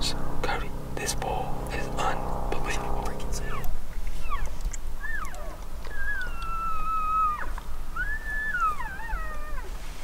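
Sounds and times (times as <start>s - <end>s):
elk whistled calls: 3.5s - 9.7s.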